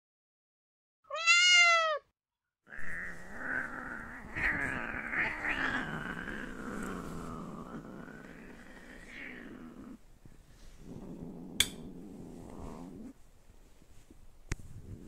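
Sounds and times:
cat growling yowl: 1.1 - 2.1, 2.7 - 10.0.

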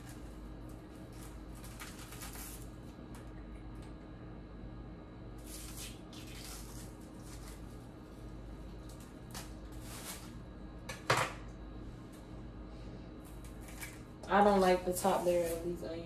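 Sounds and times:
onion skin crackling and rustling: 0.0 - 3.0, 5.4 - 10.5
faint low hum: 0.0 - 16.0.

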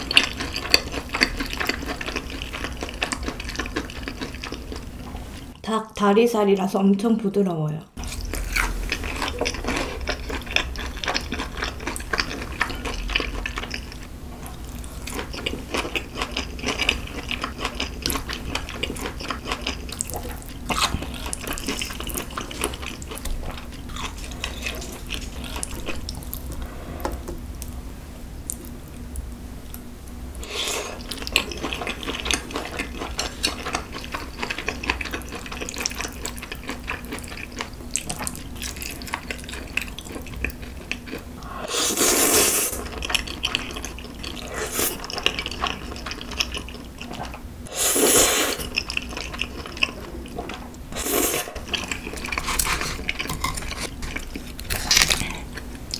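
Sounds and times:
slurping noodles: 41.4 - 42.9, 47.7 - 48.7, 51.0 - 51.6.

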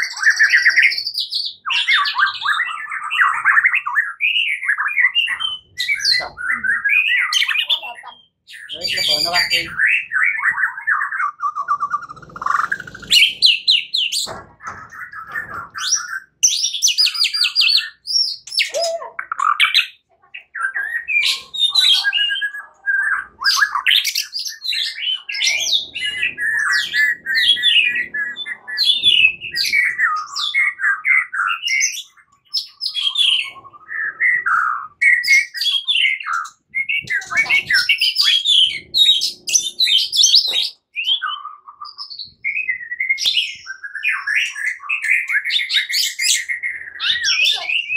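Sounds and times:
songbird singing varied whistles and trills: 0.0 - 14.2, 15.2 - 47.9.

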